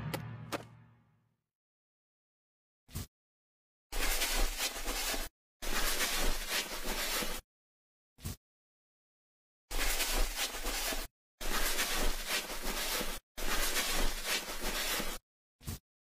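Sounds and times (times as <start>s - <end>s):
bristle brush sweeping grit: 4.0s - 7.4s, 9.7s - 15.2s.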